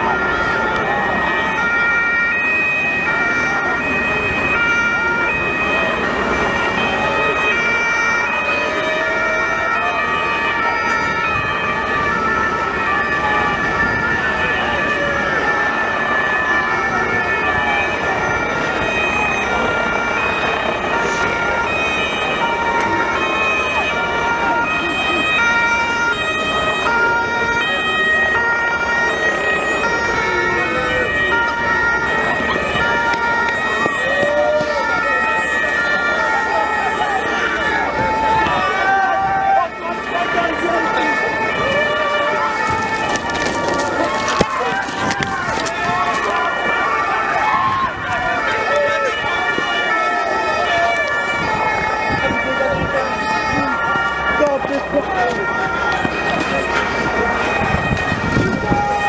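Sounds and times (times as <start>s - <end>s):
two-tone police sirens: 0.0s - 59.0s
people shouting: 28.4s - 59.0s.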